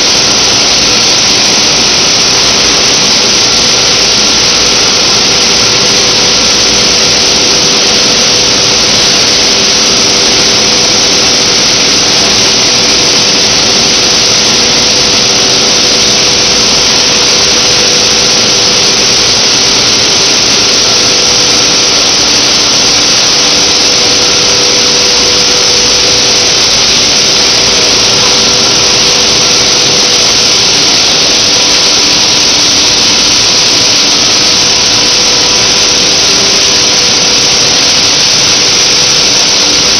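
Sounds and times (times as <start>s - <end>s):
loud constant hiss: 0.0s - 39.9s
steady humming tones: 0.0s - 39.9s.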